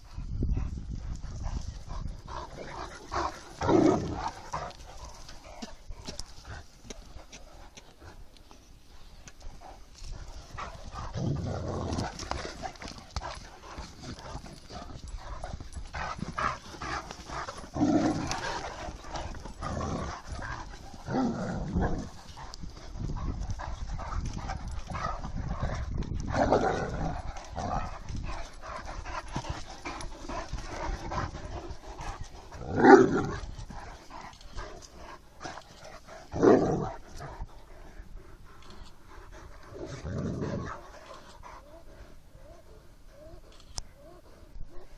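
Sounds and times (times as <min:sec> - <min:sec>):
paws scraping and thudding: 0:00.0 - 0:43.8.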